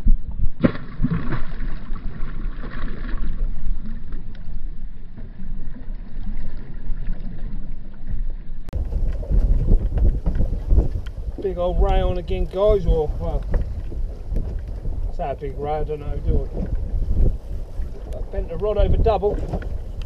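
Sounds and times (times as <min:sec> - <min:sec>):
water slapping boat hull: 0:00.0 - 0:20.0
steady low rumble: 0:03.4 - 0:20.0
wind buffeting microphone: 0:08.7 - 0:20.0.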